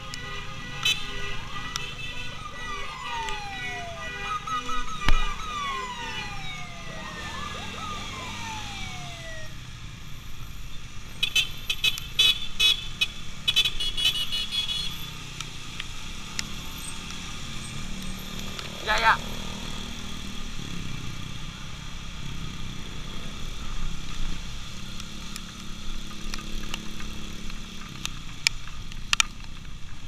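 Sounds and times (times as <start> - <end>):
sirens wailing: 0.0 - 10.2, 16.3 - 21.0
motorcycle engines rumbling: 0.0 - 30.0
wind: 0.0 - 30.0.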